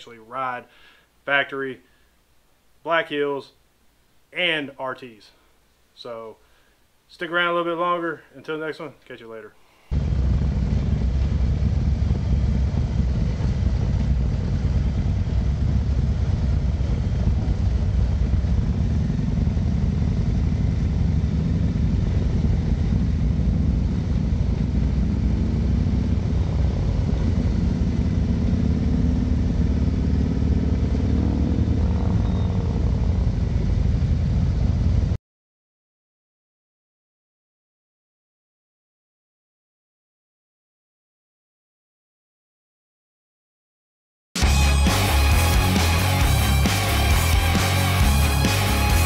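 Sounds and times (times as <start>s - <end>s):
motorcycle engine rumble: 9.9s - 35.2s.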